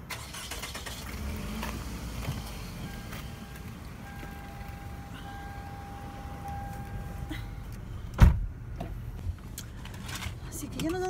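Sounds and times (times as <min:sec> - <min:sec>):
car engine idling: 0:00.0 - 0:11.0
loud thump: 0:08.2 - 0:08.5.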